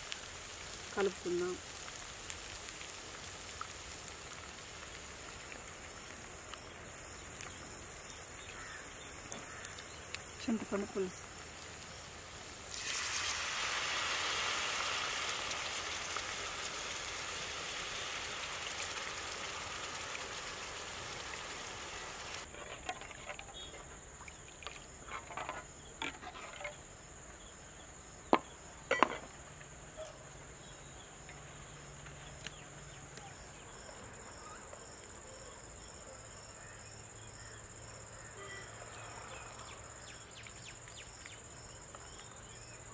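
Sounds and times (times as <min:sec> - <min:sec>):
crickets trilling: 0:00.0 - 0:42.9
water pouring into metal pot: 0:12.5 - 0:22.4.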